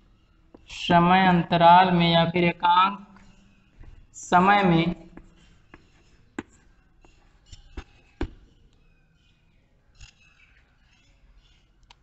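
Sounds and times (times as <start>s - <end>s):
chalk tapping and scraping on chalkboard: 5.1s - 8.6s, 10.0s - 12.0s.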